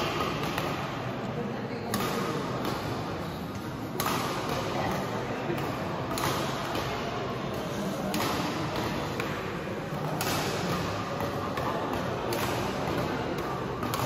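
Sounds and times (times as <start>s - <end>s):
racket hitting shuttlecock: 0.0s - 1.1s, 1.8s - 14.0s
crowd murmur: 0.0s - 14.0s.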